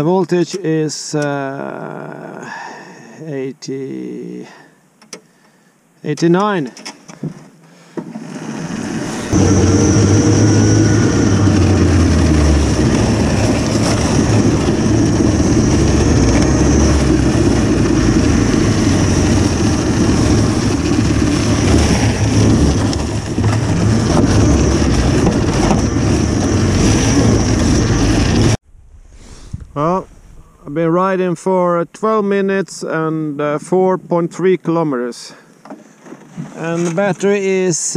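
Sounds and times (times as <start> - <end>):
electric snowmobile running: 8.2 - 28.6.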